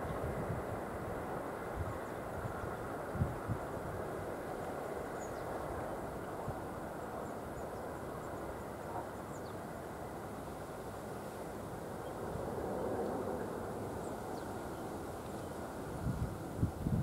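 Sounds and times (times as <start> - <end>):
wind rushing on microphone: 0.0 - 4.6, 15.8 - 17.0.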